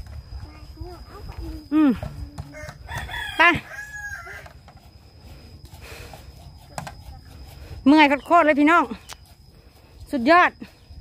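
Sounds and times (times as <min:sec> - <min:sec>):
rooster crowing: 0:02.5 - 0:04.6.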